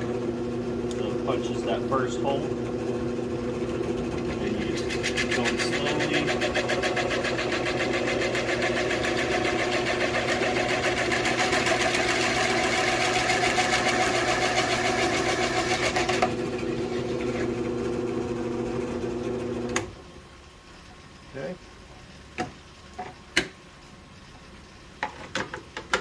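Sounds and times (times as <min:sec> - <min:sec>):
drill press motor hum: 0:00.0 - 0:20.0
cutter scraping plastic: 0:04.4 - 0:07.5.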